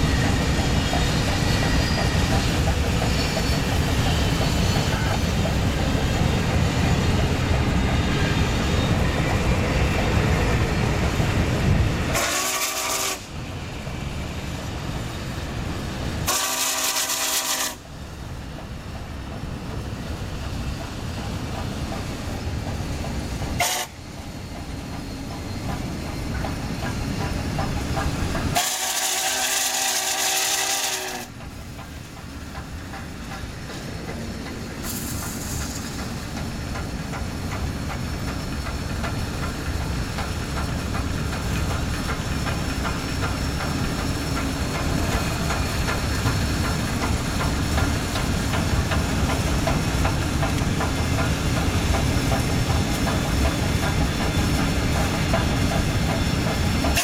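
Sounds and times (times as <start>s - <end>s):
steam hissing: 0.0s - 57.0s
train wheels rumbling on rail: 0.0s - 57.0s
steam whistle blowing: 12.1s - 13.3s, 16.3s - 17.8s, 23.6s - 24.0s, 28.6s - 31.3s.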